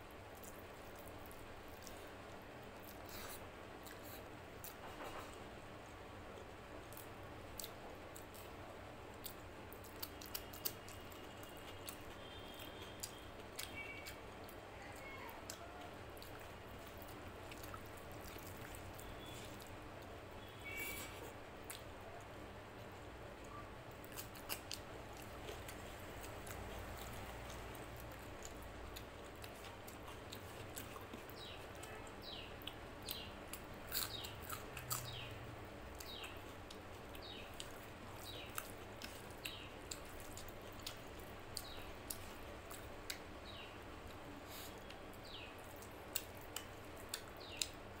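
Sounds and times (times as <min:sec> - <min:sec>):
wet chewing and mouth smacks: 0:09.1 - 0:14.6, 0:16.2 - 0:19.8.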